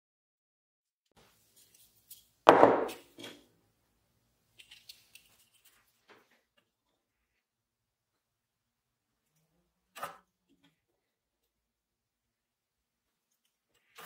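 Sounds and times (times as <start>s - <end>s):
wooden block knocking on bench: 2.5s - 3.0s.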